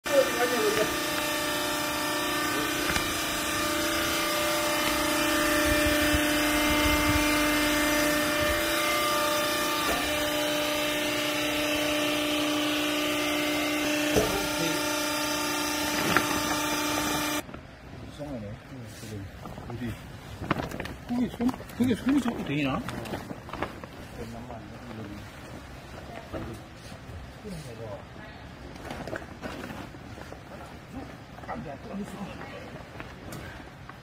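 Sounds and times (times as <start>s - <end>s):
electric motor and hydraulic pump hum: 0.1s - 17.6s.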